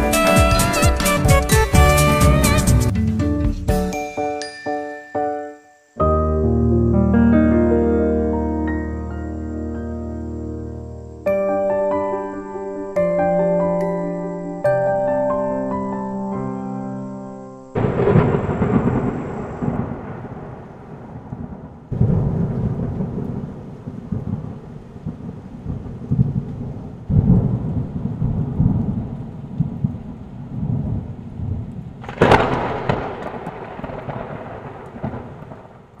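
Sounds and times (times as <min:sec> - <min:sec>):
thunder rumbling: 0:00.0 - 0:03.5, 0:17.8 - 0:36.0
rain: 0:17.7 - 0:36.0.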